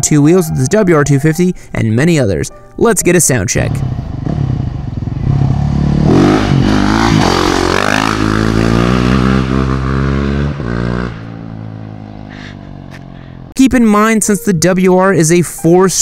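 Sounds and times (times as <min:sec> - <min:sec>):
motorcycle engine idling: 0:03.7 - 0:09.2, 0:10.0 - 0:13.6
motorcycle engine revving: 0:03.7 - 0:13.6.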